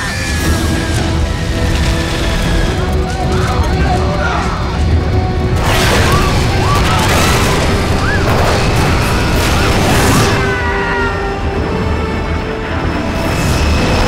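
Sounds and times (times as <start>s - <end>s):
passengers screaming: 0.0s - 1.6s, 5.8s - 11.6s
dramatic film music: 0.0s - 14.0s
crashing and tearing debris: 5.5s - 10.8s.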